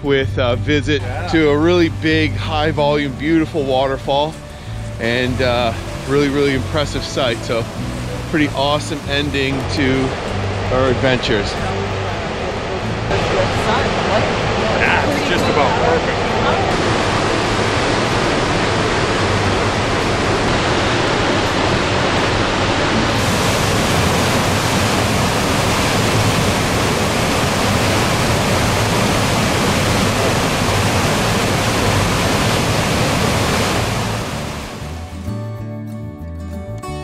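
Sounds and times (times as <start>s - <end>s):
waterfall rushing: 1.0s - 35.2s.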